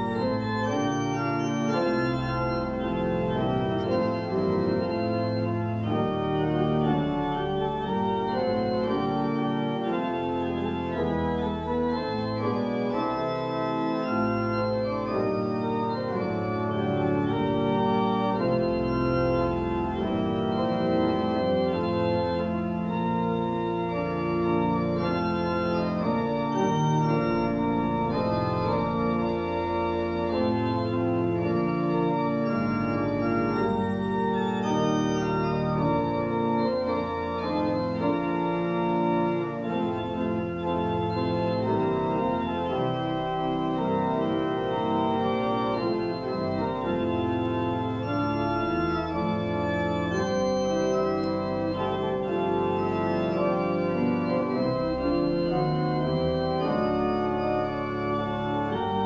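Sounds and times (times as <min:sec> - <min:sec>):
church organ playing chords: 0:00.0 - 0:59.0.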